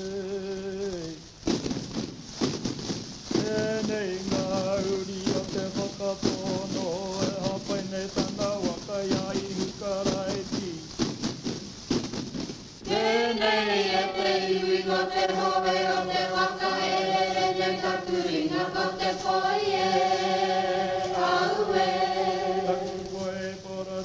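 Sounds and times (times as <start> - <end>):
chant-like sung notes: 12.8 - 24.0.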